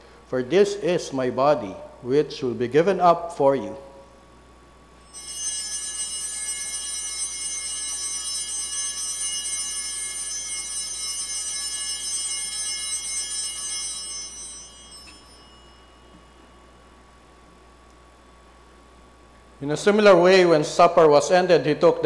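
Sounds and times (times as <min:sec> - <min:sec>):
altar bells ringing: 0:05.0 - 0:17.2.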